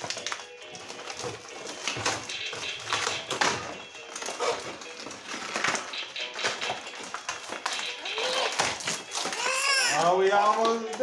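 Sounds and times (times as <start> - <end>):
packaging being torn: 7.1 - 10.8.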